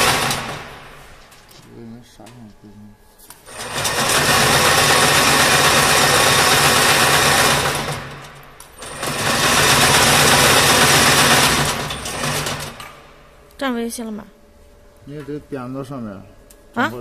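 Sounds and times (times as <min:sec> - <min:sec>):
braiding machine mechanical clatter: 0:00.0 - 0:01.7, 0:03.4 - 0:13.2.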